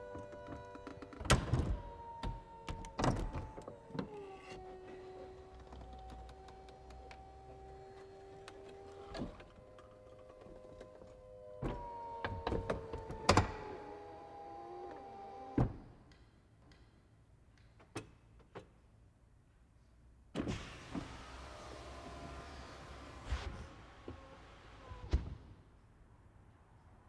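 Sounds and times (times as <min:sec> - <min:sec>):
folding roof motor whine: 0:00.0 - 0:15.8, 0:20.7 - 0:25.4.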